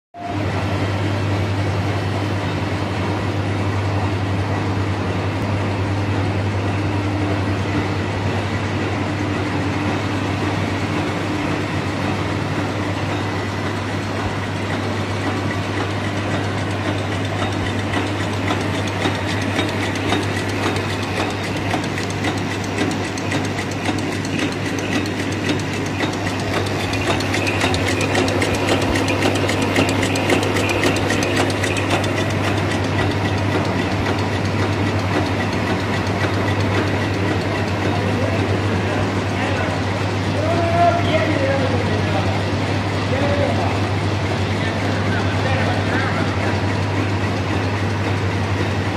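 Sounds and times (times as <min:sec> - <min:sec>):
low machine hum: 0:00.2 - 0:48.9
wrapping machine clatter: 0:14.4 - 0:38.7.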